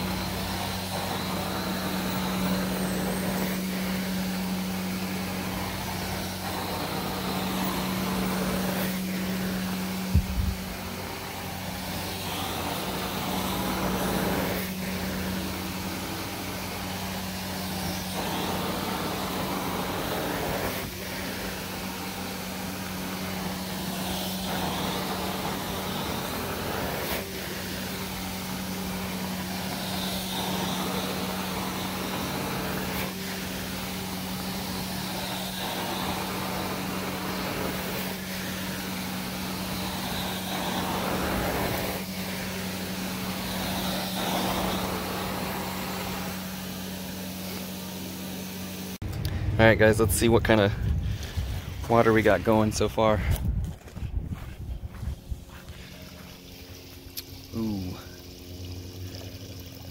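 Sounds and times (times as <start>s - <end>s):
carpet extractor humming: 0.0s - 59.9s
wand sucking up water: 55.5s - 59.9s.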